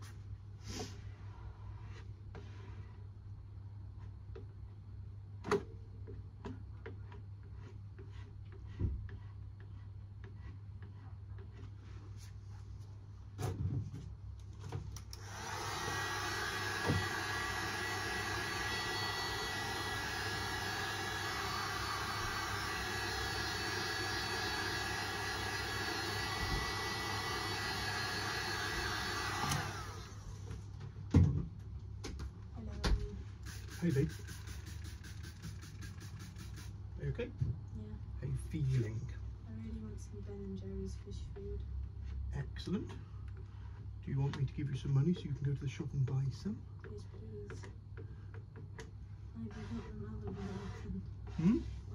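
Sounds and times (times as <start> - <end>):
electric fan motor running: 14.9 - 30.7, 33.4 - 37.1.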